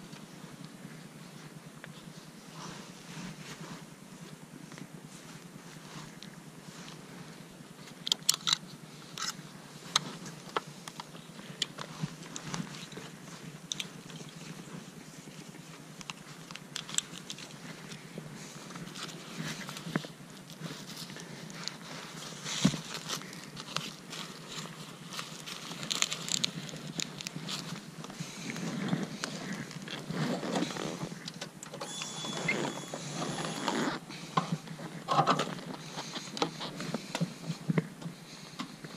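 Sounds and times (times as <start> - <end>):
leather gear rustling and clicking: 7.8 - 38.9.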